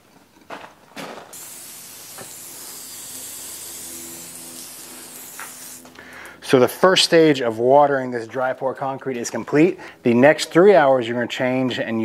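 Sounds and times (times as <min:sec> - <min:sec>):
hose nozzle spraying water: 0:01.3 - 0:05.9.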